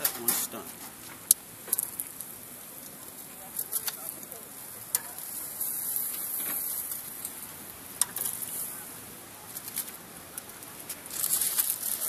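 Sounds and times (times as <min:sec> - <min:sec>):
food sizzling on a grill: 0:00.0 - 0:12.0
metal tongs clicking on grate: 0:04.9 - 0:05.2, 0:08.0 - 0:08.4.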